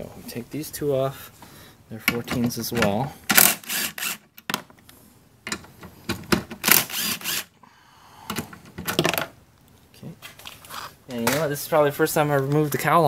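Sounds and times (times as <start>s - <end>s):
cordless driver whirring: 3.4s - 4.2s, 6.6s - 7.5s.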